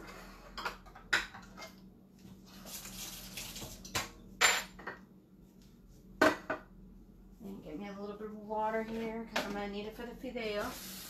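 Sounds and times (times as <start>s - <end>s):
dishes and utensils clinking: 3.8s - 5.0s.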